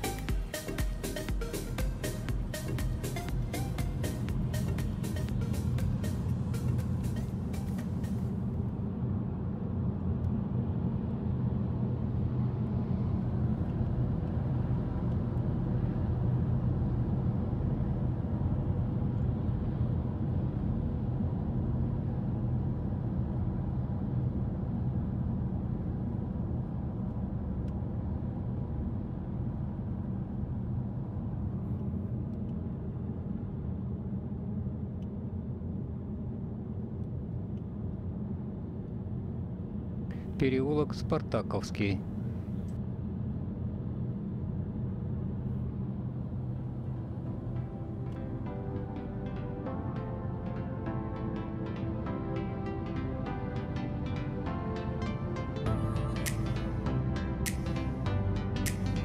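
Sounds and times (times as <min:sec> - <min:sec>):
car engine and tyres rumbling: 0:00.0 - 0:41.2.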